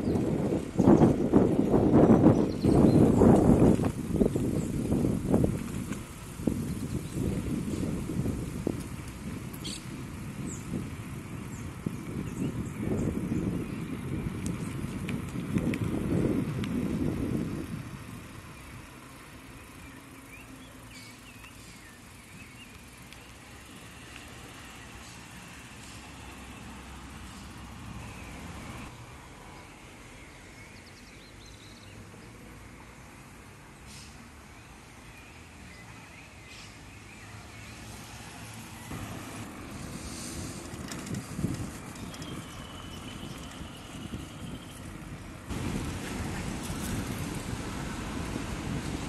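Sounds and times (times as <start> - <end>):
bird chirping: 42.0 - 44.9
low rumbling noise: 45.2 - 49.0.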